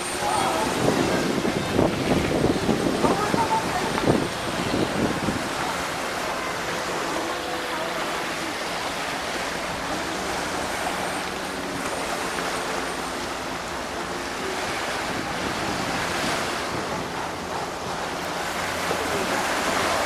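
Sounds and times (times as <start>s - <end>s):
wind buffeting microphone: 0.0s - 11.4s, 13.3s - 20.0s
waves washing over rocks: 0.0s - 20.0s.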